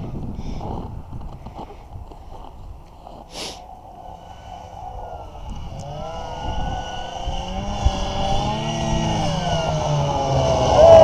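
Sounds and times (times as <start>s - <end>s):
snowmobile engine approaching: 2.3s - 11.0s
brief hiss: 3.3s - 3.6s.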